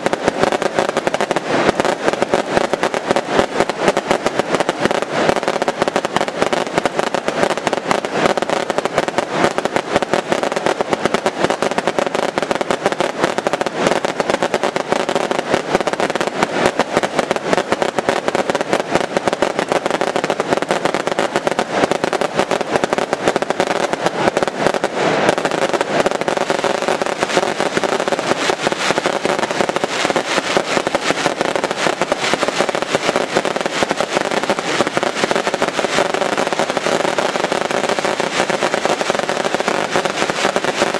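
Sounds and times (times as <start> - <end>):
fireworks cracks and bangs: 0.0 - 40.9.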